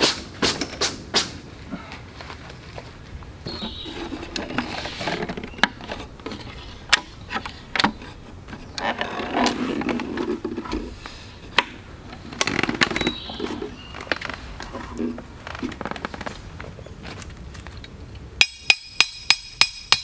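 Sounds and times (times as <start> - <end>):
rustling and scraping: 0.0 - 17.8
wooden clacks and knocks: 3.5 - 10.8.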